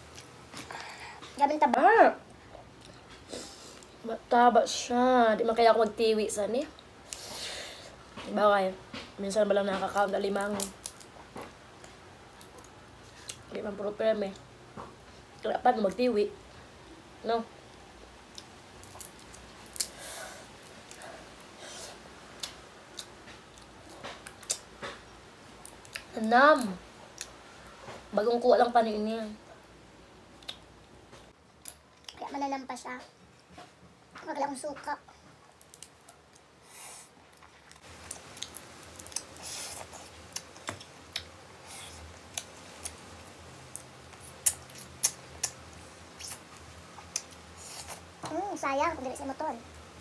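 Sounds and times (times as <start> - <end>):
chewing: 43.7 - 45.6.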